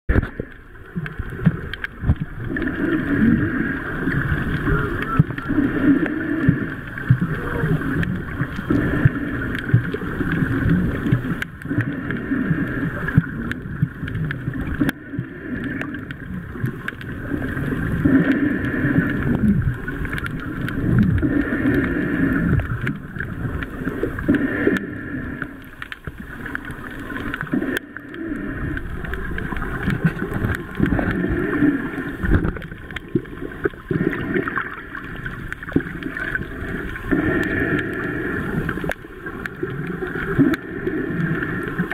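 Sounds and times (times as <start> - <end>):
water swishing and gurgling underwater: 0.0 - 41.9.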